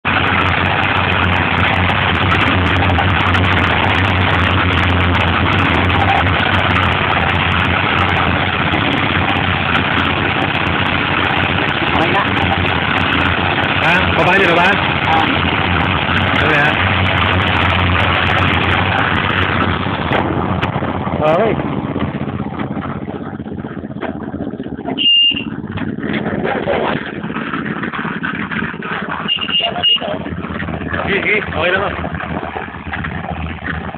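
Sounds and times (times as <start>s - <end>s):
concrete mixer running: 0.0s - 33.9s
high-pitched squeal: 29.1s - 30.3s.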